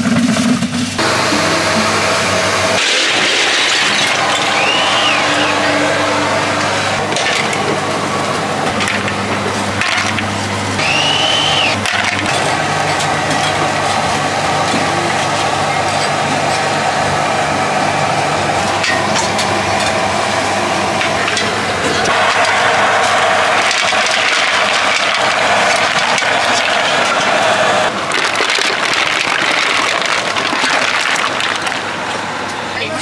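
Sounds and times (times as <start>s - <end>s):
noisy street din: 0.0s - 33.0s
low motor hum: 1.0s - 32.8s
high whistle-like tone: 4.2s - 6.5s, 10.8s - 11.8s.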